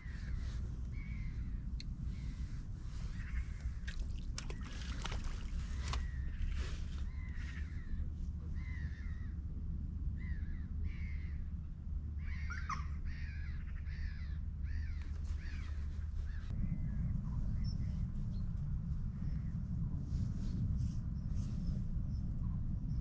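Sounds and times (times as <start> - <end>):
bird harsh caw-like calls: 0.0 - 8.0, 8.6 - 9.4, 10.2 - 11.5, 12.2 - 16.5
steady low rumble: 0.0 - 23.0.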